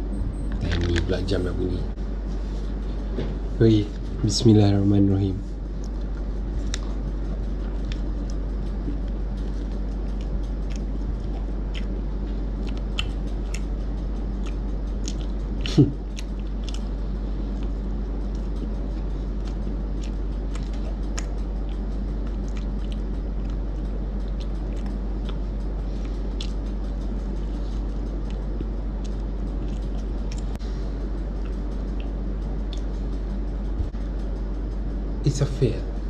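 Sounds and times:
low hum: 0.0s - 36.0s
wet chewing mouth clicks: 7.8s - 16.9s, 17.5s - 25.4s, 26.0s - 26.6s, 28.2s - 30.6s.

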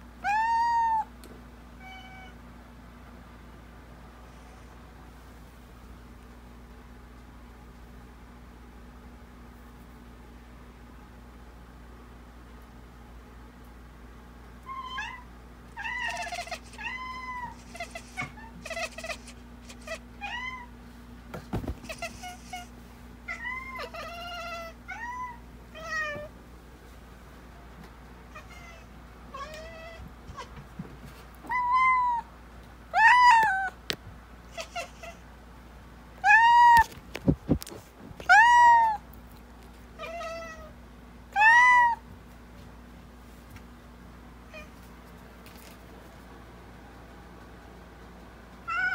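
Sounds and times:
cat meowing: 0.2s - 1.1s, 14.7s - 20.7s, 31.5s - 32.2s, 38.3s - 39.0s, 41.4s - 42.0s, 48.7s - 48.9s.

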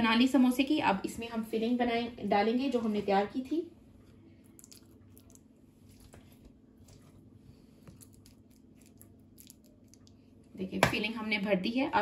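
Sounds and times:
low steady hum: 0.0s - 12.0s
hands handling pastry: 5.5s - 10.4s.

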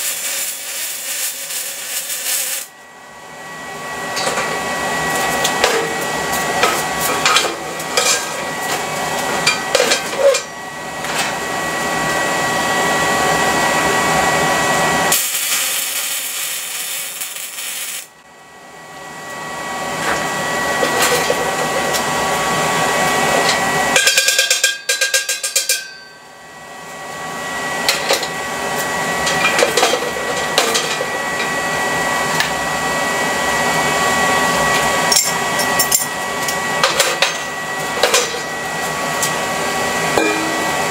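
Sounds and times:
welding arc crackling: 0.0s - 2.7s, 15.1s - 18.2s.

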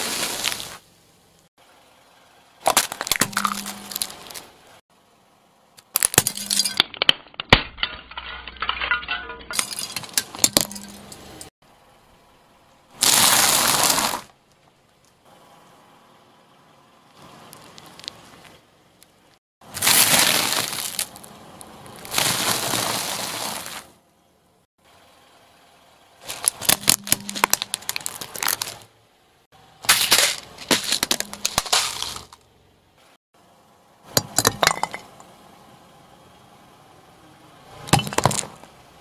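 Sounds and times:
car tyre crushing small objects: 0.0s - 0.8s, 2.6s - 4.6s, 5.8s - 11.5s, 13.0s - 15.3s, 17.1s - 24.0s, 26.2s - 29.0s, 29.8s - 32.6s, 34.1s - 35.2s, 37.8s - 38.8s.

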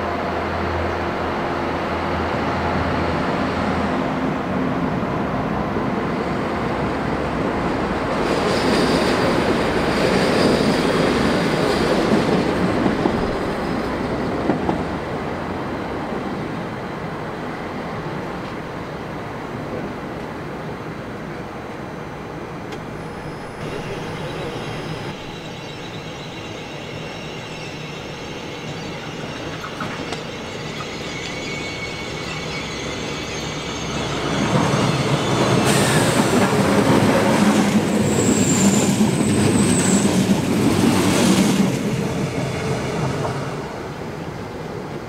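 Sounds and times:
train rumbling past: 0.0s - 45.0s
train wheel squeal: 7.2s - 16.4s, 22.7s - 44.8s.

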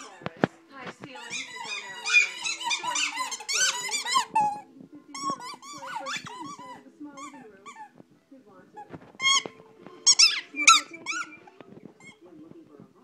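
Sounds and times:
squeaky dog toy squeaking: 1.1s - 8.0s, 8.8s - 12.2s.

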